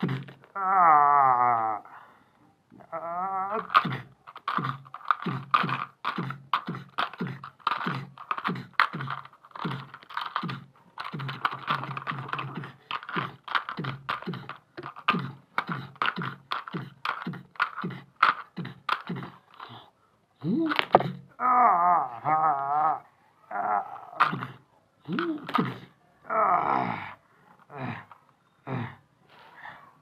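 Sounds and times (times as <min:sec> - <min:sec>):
rapid sharp clacks: 0:03.7 - 0:19.4.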